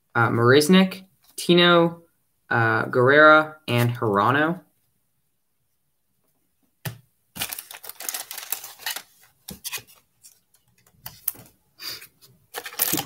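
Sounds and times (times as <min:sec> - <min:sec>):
foil wrapper crinkling: 0:07.4 - 0:11.5, 0:12.5 - 0:13.0.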